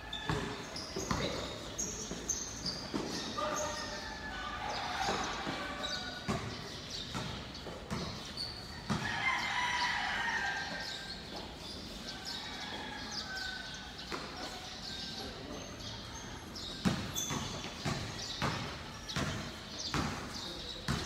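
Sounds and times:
basketball bouncing on court: 0.1s - 3.4s, 5.0s - 9.3s, 16.6s - 21.0s
rooster crowing: 8.9s - 10.9s.

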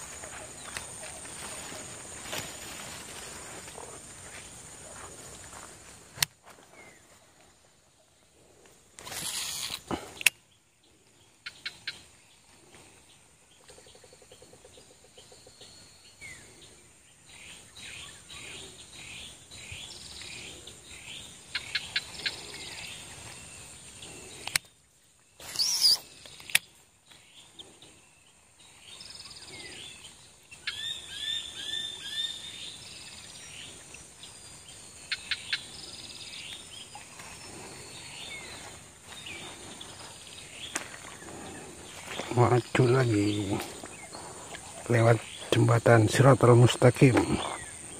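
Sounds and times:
birds chirping and calling: 8.5s - 47.9s
high insect buzz: 8.9s - 10.3s, 25.3s - 26.7s.

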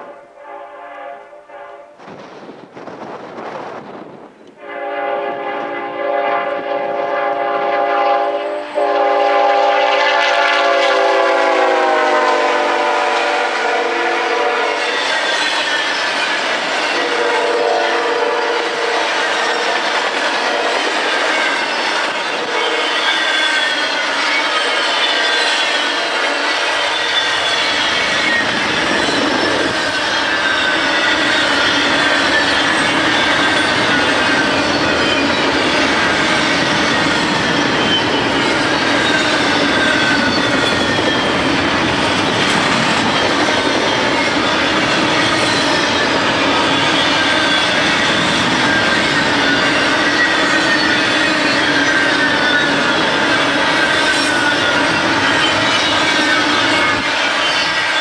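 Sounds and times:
train wheels rolling: 2.0s - 58.0s
wheel squeal: 14.8s - 17.0s, 19.0s - 58.0s.

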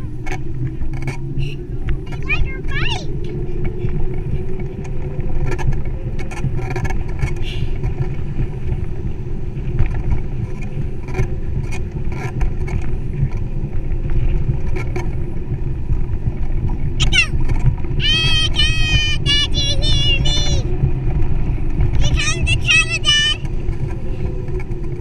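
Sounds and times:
bicycle clicks and rattles: 0.0s - 2.3s, 3.2s - 18.0s, 23.4s - 25.0s
tyres rumbling on pavement: 0.0s - 25.0s
wind buffeting microphone: 0.0s - 25.0s.

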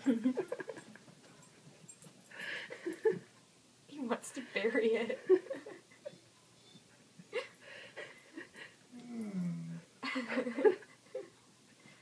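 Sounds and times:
dog groaning: 8.9s - 9.9s.

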